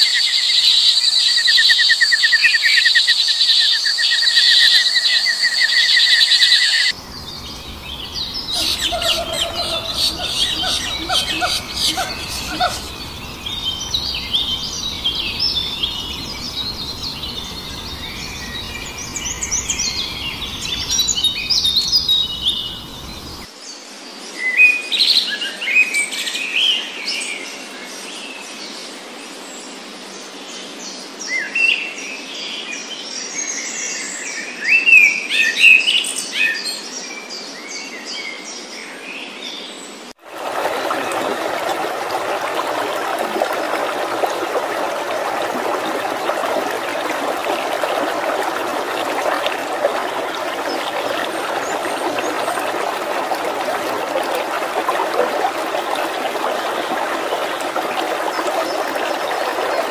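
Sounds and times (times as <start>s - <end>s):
wild birds chirping: 5.0s - 23.5s, 40.3s - 59.9s
rushing water: 5.3s - 23.5s, 40.2s - 59.9s.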